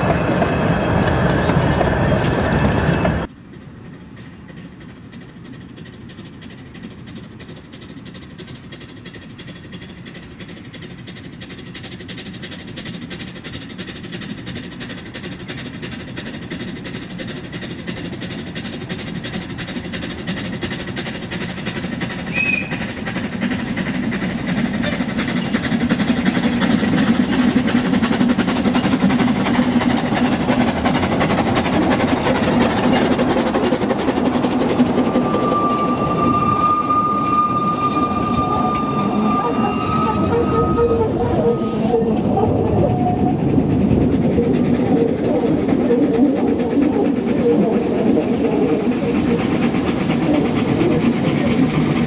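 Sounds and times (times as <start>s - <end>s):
steam train approaching: 0.0s - 52.0s
train carriages rolling on rails: 0.0s - 52.0s.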